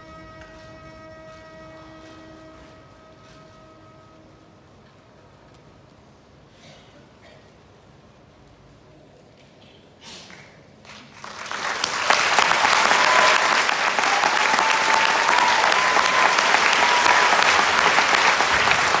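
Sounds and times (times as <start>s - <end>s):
audience applause: 10.8s - 19.0s.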